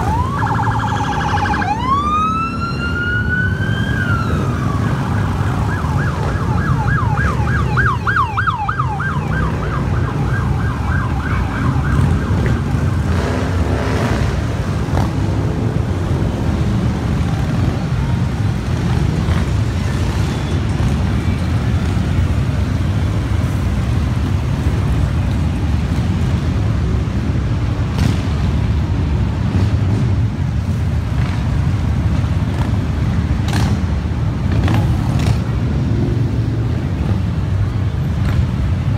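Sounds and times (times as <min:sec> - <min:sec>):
police siren yelping: 0:00.0 - 0:13.0
motorcycle engines rumbling: 0:00.0 - 0:38.9.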